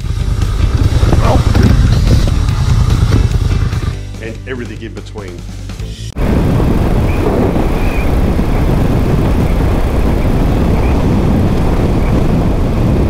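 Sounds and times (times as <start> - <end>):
motorcycle engine running: 0.0 - 4.4, 6.2 - 13.0
wind rushing over microphone: 0.4 - 3.9, 6.2 - 13.0.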